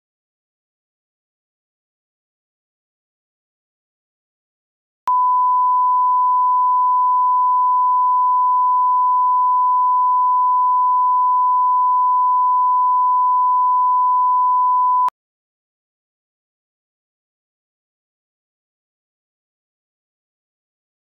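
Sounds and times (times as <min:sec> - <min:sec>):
steady test tone beep: 0:05.1 - 0:15.1.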